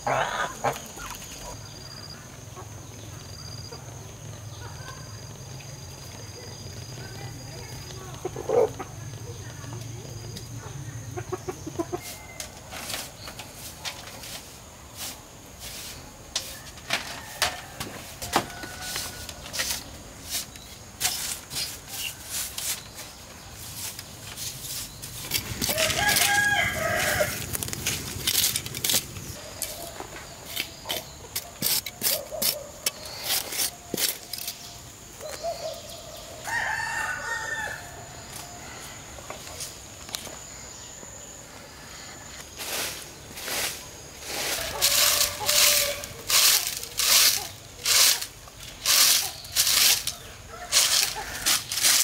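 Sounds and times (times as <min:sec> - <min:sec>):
rooster crowing: 0:16.5 - 0:19.4, 0:25.4 - 0:27.5, 0:36.2 - 0:39.2, 0:44.3 - 0:46.4.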